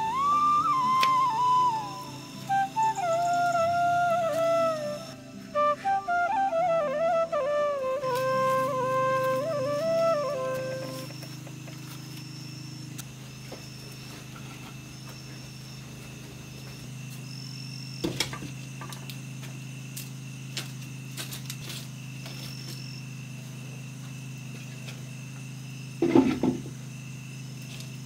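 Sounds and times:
flute music: 0.0 - 11.4
steady low hum: 0.0 - 26.0
insects trilling: 0.0 - 28.0
firewood and pots clattering: 26.0 - 26.7.

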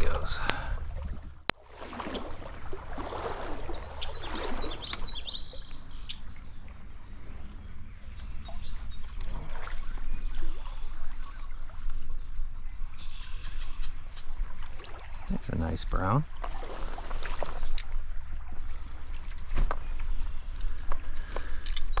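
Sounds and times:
stream water running: 0.0 - 22.0
small bird chirping: 3.6 - 6.6.

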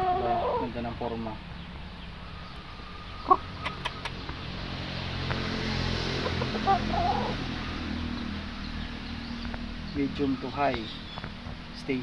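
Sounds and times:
rooster clucking: 0.0 - 0.8, 3.2 - 4.3, 6.0 - 7.6
rushing background noise: 0.8 - 12.0.

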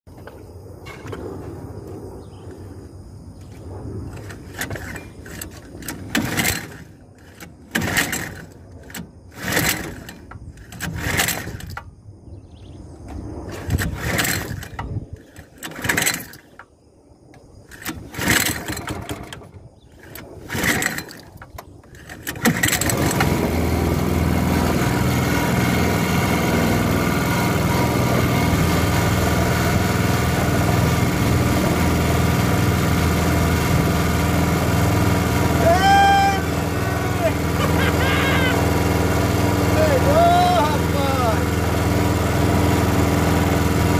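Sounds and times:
engine pull-start: 4.1 - 12.0, 13.5 - 16.7, 17.4 - 41.5
small petrol engine running: 4.2 - 11.8, 13.5 - 16.6, 17.7 - 43.9.

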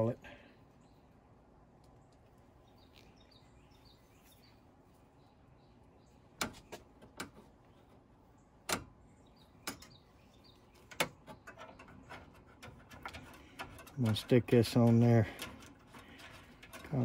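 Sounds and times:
sharp clicks and light knocks: 6.4 - 7.5, 8.6 - 9.0, 9.6 - 10.0, 10.8 - 17.0
small metal taps: 9.6 - 10.0.

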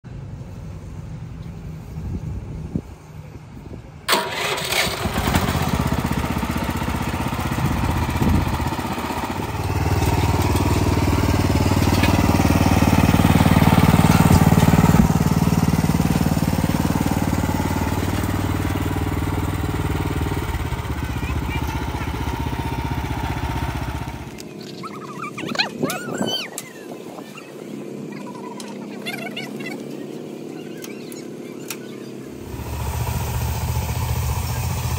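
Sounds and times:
small gasoline engine running: 4.1 - 24.5, 32.4 - 34.9.

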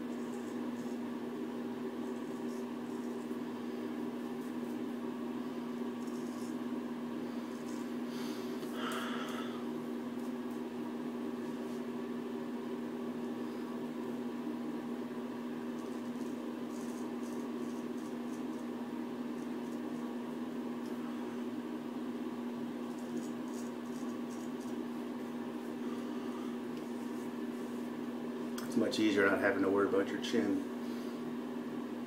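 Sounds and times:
mechanical hum: 0.0 - 32.0
razor scraping stubble: 5.9 - 6.7, 15.7 - 18.7, 22.8 - 25.0.

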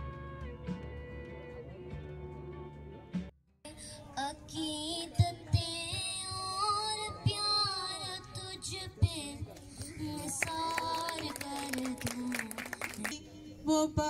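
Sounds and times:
girl singing through loudspeakers: 3.7 - 14.0.

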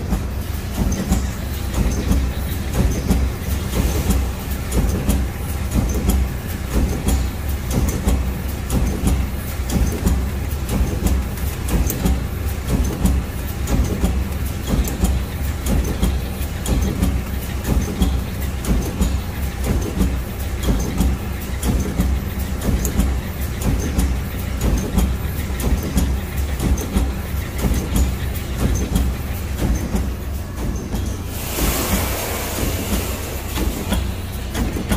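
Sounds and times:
low machine hum: 0.0 - 34.9
machine rhythmic clatter: 0.0 - 34.9.

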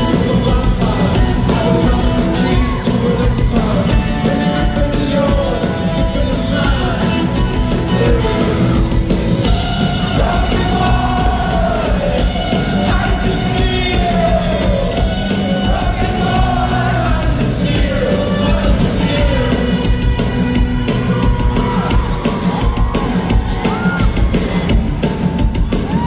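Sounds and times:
person singing and shouting: 0.0 - 20.6
drums: 0.0 - 26.0
electric guitars: 0.0 - 26.0.

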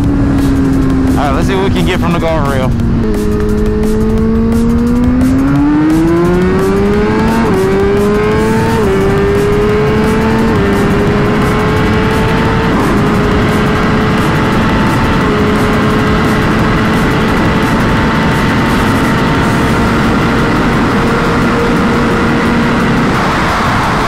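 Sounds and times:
motorcycle engine at full throttle: 0.0 - 24.0
rushing noise: 0.0 - 24.0.

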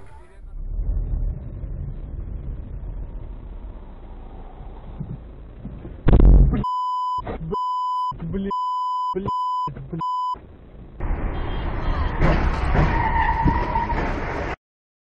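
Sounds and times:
driver's voice: 0.0 - 0.7, 7.2 - 10.2
car interior road noise: 0.0 - 7.6, 9.3 - 14.5
loud thump: 5.0 - 6.6
censor bleeps: 6.1 - 10.4
steady beep tone: 6.1 - 10.4.

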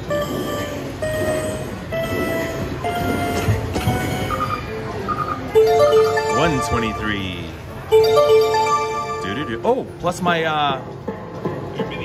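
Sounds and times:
electronic bleeps: 0.1 - 7.2.

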